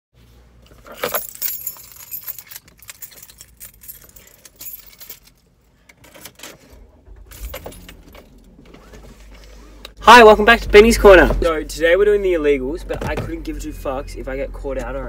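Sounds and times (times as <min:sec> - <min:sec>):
keys jangling: 0:00.7 - 0:06.5, 0:07.3 - 0:08.5.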